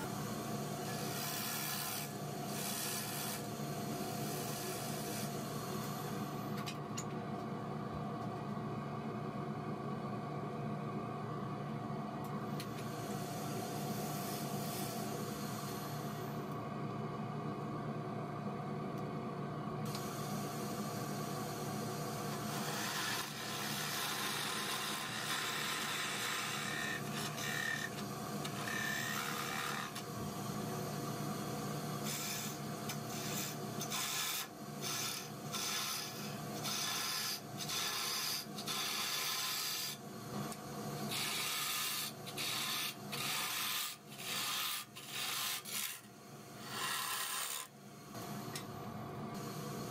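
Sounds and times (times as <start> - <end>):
wood lathe motor hum: 22.5 - 30.0, 33.3 - 39.9, 46.6 - 47.7
turning tool scraping wood: 46.7 - 47.7.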